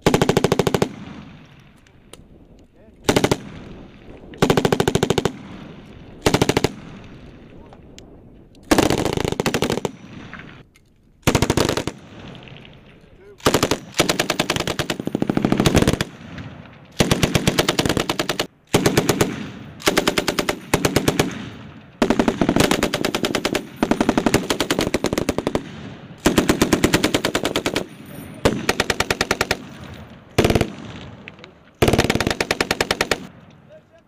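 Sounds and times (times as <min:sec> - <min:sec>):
machine gun bursts: 0:13.4 - 0:16.1.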